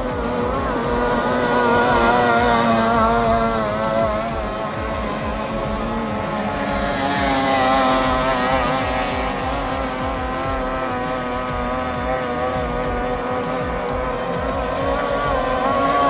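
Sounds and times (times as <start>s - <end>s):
low engine rumble: 0.0s - 16.0s
outboard engines whining: 0.0s - 16.0s.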